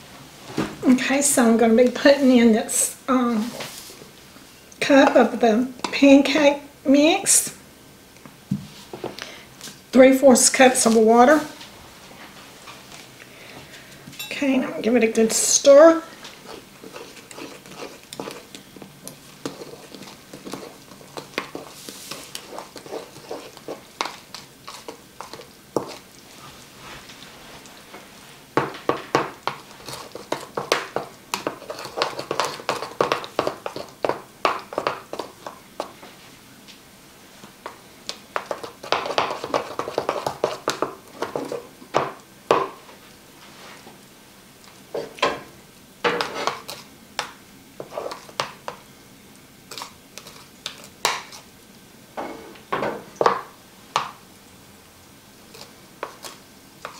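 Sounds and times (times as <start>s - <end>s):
spoon stirring batter in bowl: 14.2s - 27.8s, 28.5s - 36.2s, 37.4s - 42.9s, 46.1s - 48.9s, 49.7s - 51.5s, 55.5s - 56.9s.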